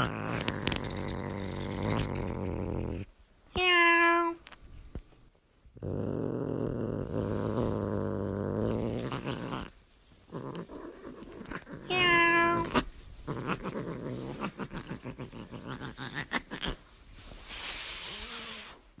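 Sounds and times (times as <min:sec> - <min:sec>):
kitten growling: 0:00.0 - 0:03.1, 0:05.8 - 0:16.9
kitten meowing: 0:03.6 - 0:04.4, 0:11.9 - 0:12.9.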